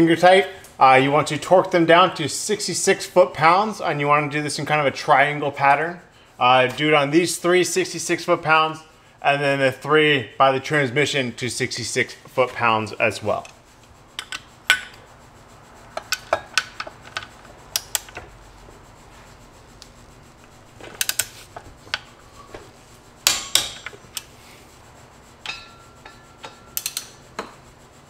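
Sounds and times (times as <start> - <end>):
wrench clicking on bolts: 16.0 - 18.2, 21.0 - 22.1, 23.2 - 24.3, 25.4 - 27.5.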